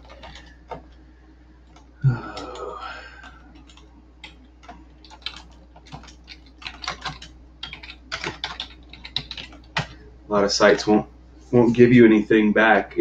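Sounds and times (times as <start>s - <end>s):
computer keyboard typing: 0.0s - 1.0s, 1.7s - 10.0s.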